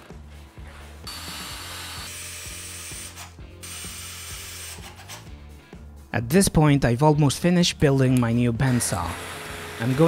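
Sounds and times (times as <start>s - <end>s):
cordless drill whining: 1.0s - 4.8s, 8.7s - 10.0s.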